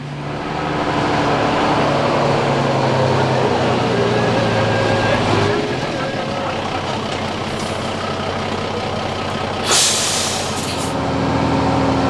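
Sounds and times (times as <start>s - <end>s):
diesel engine running: 0.0s - 12.0s
air brake hiss: 9.6s - 11.0s.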